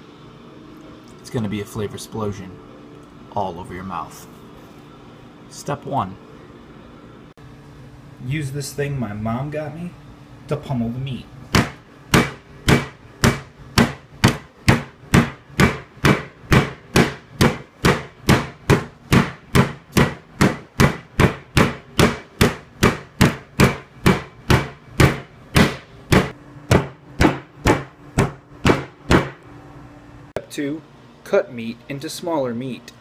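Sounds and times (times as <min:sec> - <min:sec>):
mallet whacking meat on board: 0:11.6 - 0:29.4.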